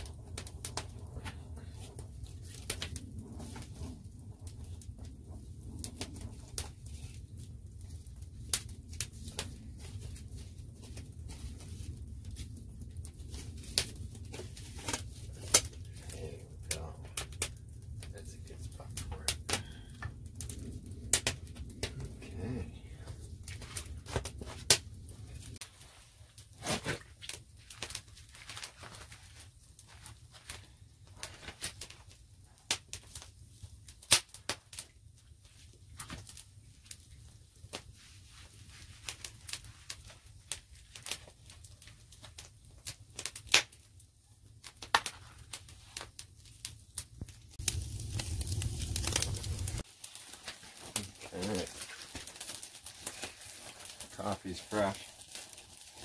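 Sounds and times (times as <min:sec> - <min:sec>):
low steady rumble: 0:00.0 - 0:26.0, 0:47.4 - 0:49.9
wood fire crackling and popping: 0:00.0 - 0:56.0.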